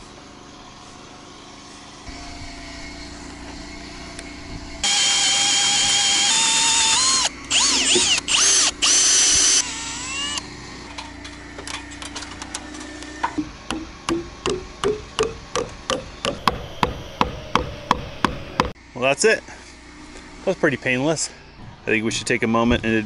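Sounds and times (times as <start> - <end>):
cordless drill whining: 4.2 - 10.5.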